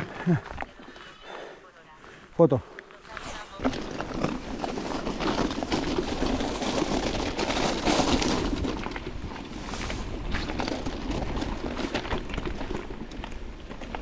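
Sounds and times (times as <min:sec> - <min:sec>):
bike tyre rumble: 0:03.1 - 0:14.0
bike rattling and knocking: 0:03.6 - 0:14.0.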